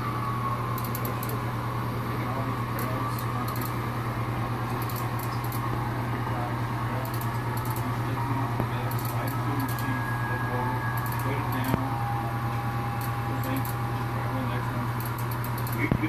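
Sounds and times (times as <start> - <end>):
steady low hum: 0.0 - 16.0
model train wheels ticking: 4.7 - 5.6, 7.0 - 8.0, 11.0 - 11.9, 13.0 - 13.8, 14.9 - 16.0.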